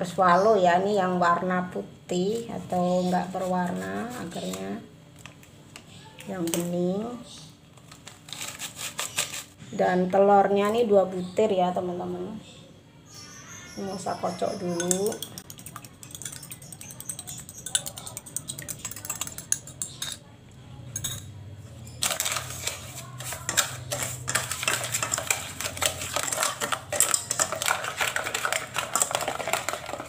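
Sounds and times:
spatula scraping a metal pot: 0:08.3 - 0:09.5, 0:22.0 - 0:30.0.

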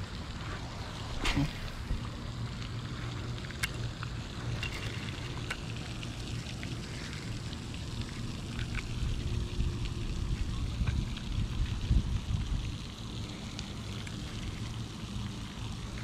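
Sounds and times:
wind buffeting microphone: 0:00.0 - 0:03.4, 0:09.0 - 0:12.9.

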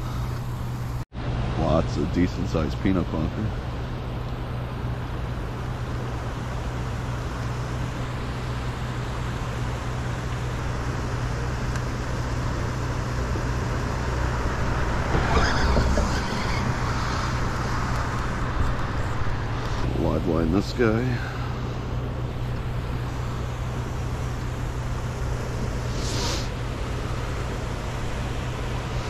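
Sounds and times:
low rumble of road traffic: 0:00.0 - 0:29.0
vehicle passing: 0:13.9 - 0:22.0.

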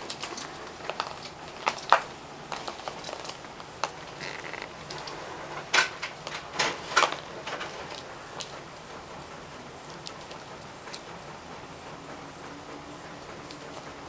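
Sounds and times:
cork skittering across hard floor: 0:00.0 - 0:08.5.

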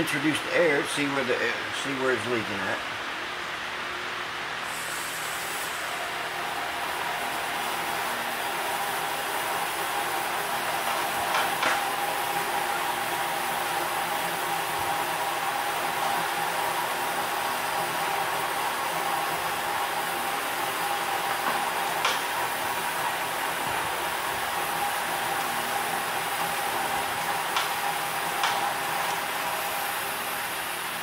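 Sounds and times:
compressed air hissing: 0:04.6 - 0:06.1.

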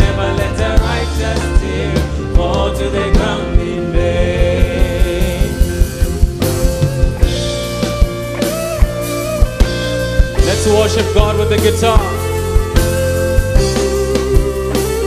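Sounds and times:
person singing: 0:00.0 - 0:06.9
gospel band playing: 0:00.0 - 0:15.0.

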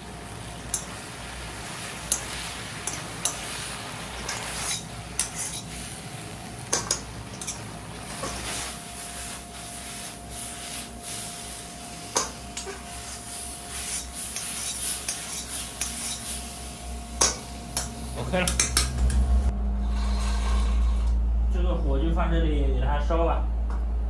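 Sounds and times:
metal cookware clinking and scraping: 0:02.1 - 0:03.5, 0:04.1 - 0:05.8, 0:06.7 - 0:08.6, 0:12.2 - 0:12.8.

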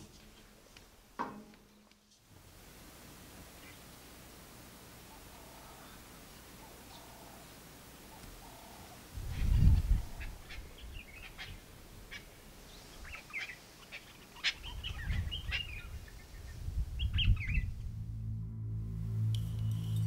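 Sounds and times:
small birds chirping: 0:05.0 - 0:17.8
low rumbles: 0:15.1 - 0:20.0.

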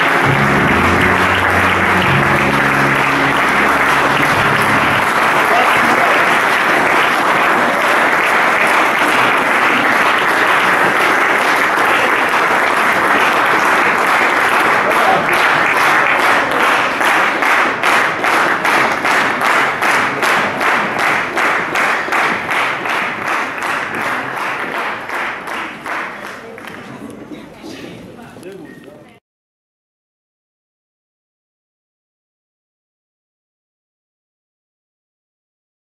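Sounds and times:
audience applause: 0:00.0 - 0:27.1.

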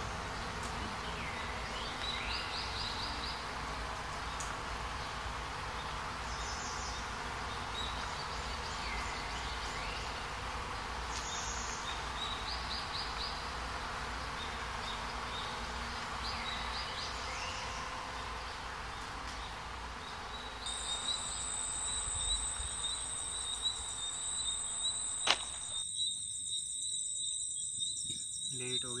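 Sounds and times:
insects chirping: 0:00.0 - 0:29.0
high-pitched insect trill: 0:01.0 - 0:29.0
sharp click: 0:25.2 - 0:25.8.

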